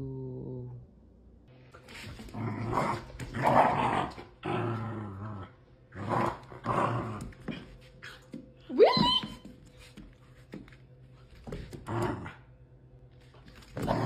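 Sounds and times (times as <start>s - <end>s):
dog growling: 2.3s - 7.4s.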